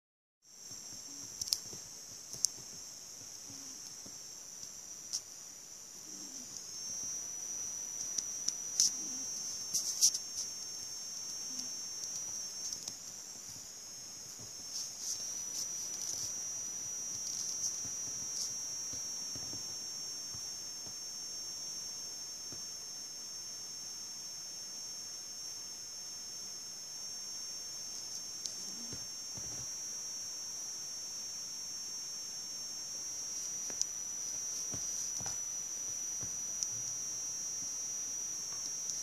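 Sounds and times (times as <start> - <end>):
high-pitched whine: 4.8 - 39.0.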